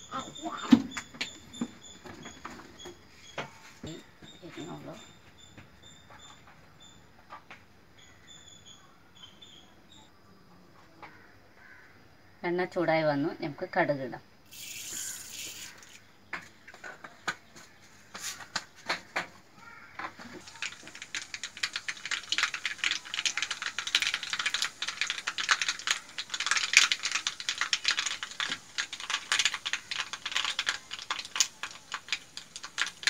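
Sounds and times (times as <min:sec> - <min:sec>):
mustard seeds popping in oil: 0:14.5 - 0:17.7, 0:20.0 - 0:33.0.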